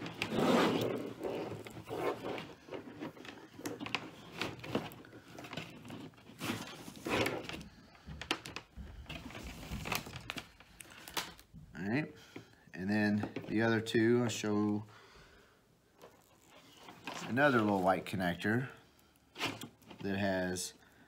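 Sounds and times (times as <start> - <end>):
wires rustling and scraping: 0.0 - 11.6, 15.9 - 21.0.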